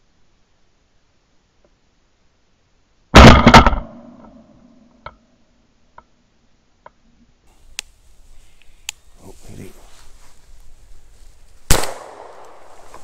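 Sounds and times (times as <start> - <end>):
shotgun shot: 3.2 - 4.2, 11.7 - 12.7
faint ticks: 7.7 - 9.0.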